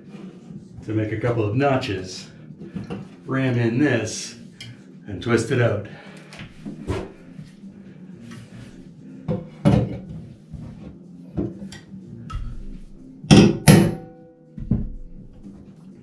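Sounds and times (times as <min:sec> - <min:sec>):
hammer striking metal: 0:13.3 - 0:14.3.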